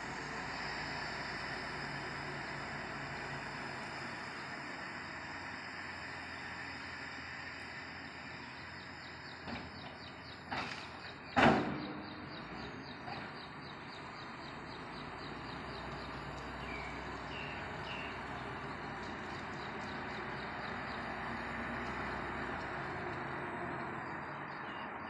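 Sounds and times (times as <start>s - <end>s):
steady outdoor hum: 0.0s - 25.0s
bird chirps: 8.3s - 21.1s.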